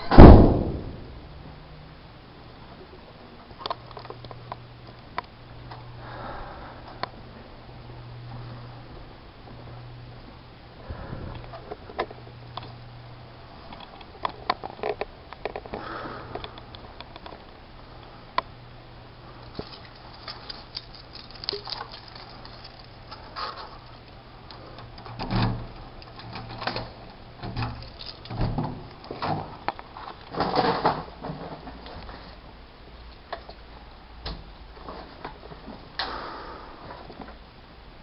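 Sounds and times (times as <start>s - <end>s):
steady low hum: 0.0s - 38.0s
rustling: 19.2s - 32.5s.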